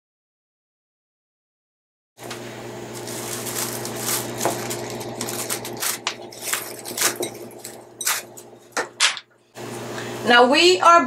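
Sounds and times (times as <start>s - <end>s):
cling film crinkling: 2.3s - 8.8s.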